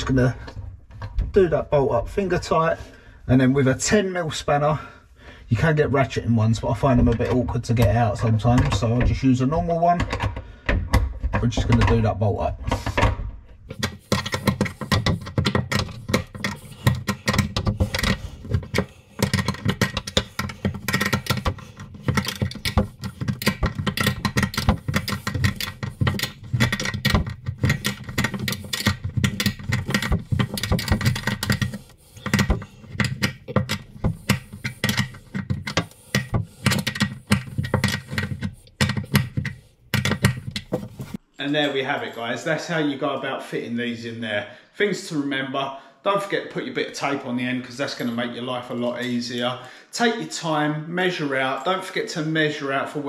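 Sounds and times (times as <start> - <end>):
spanner clicking and rattling on nut: 13.7 - 41.2.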